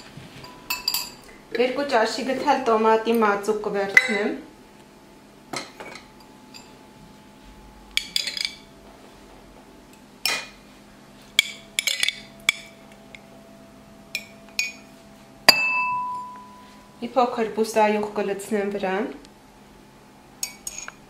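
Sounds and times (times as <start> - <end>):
spoon clinking against jar and mug: 0.5 - 1.2, 8.0 - 8.7, 11.4 - 13.2, 14.1 - 14.9, 20.4 - 21.0.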